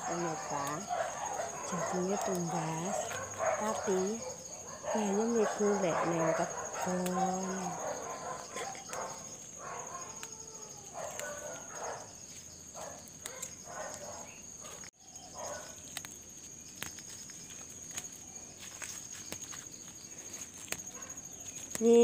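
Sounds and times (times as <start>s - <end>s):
high-pitched insect trill: 0.0s - 22.0s.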